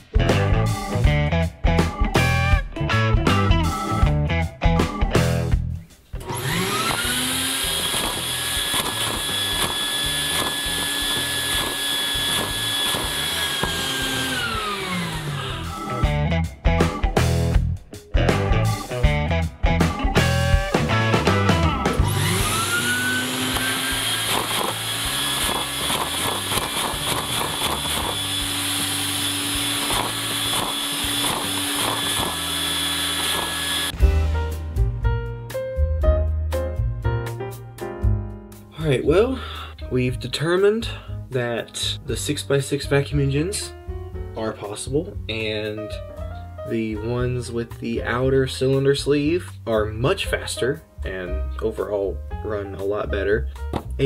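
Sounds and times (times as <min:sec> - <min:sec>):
vacuum cleaner motor whine: 0:06.2 - 0:16.0, 0:22.0 - 0:34.0.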